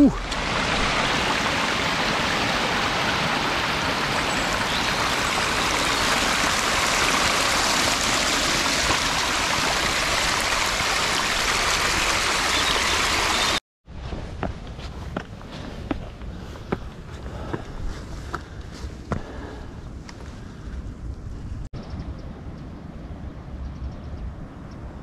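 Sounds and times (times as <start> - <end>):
stream rushing over rocks: 0.0 - 13.6
footsteps on stones: 14.0 - 19.4.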